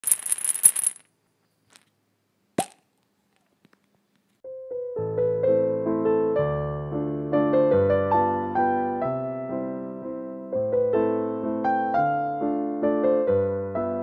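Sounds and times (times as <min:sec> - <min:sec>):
short pop: 0:02.6 - 0:02.9
soft piano music: 0:04.4 - 0:14.0.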